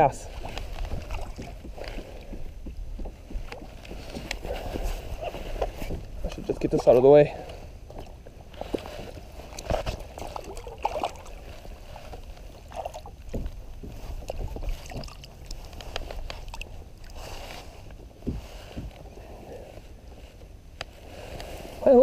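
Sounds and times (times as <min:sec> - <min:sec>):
wind on microphone: 0:00.0 - 0:06.7
fish splashing in water: 0:09.1 - 0:13.6, 0:14.2 - 0:17.2.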